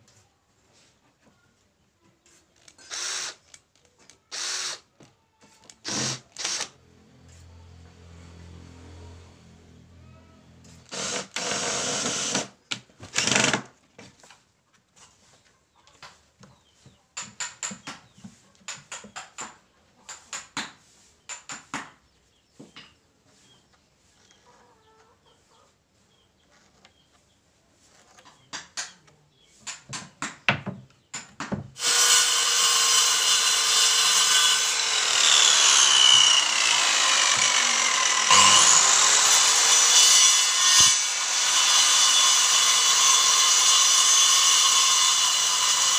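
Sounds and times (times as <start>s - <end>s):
cordless drill running: 2.8s - 3.4s, 4.3s - 4.8s, 5.8s - 6.7s, 10.9s - 12.5s, 13.2s - 13.6s, 31.8s - 45.9s
circular saw cutting wood: 5.8s - 12.6s, 31.8s - 45.9s.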